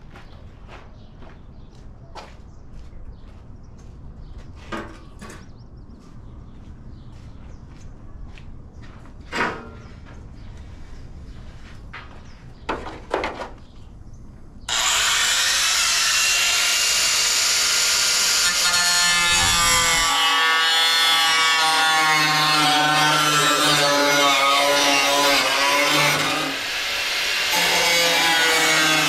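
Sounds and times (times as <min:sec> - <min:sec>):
power tool grinding fiberglass: 0:14.7 - 0:29.0.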